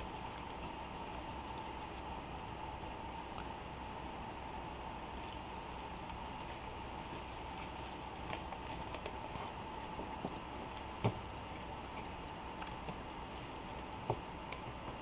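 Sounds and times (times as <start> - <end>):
hands rustling at a desk: 0.0 - 2.2, 3.8 - 14.6
steady hum: 0.0 - 15.0.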